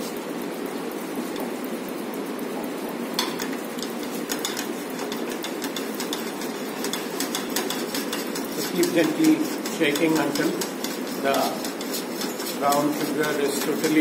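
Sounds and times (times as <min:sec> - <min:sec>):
syrup sizzling in frying pan: 0:03.1 - 0:14.0.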